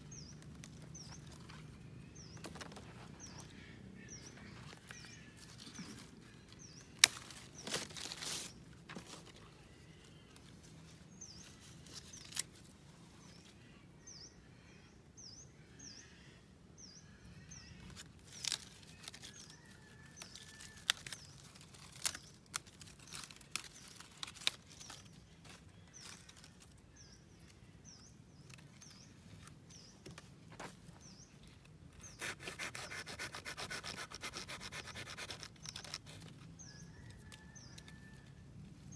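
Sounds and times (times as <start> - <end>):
knife snapping roots: 7.0 - 8.1
blade rasping on wood: 32.1 - 36.2.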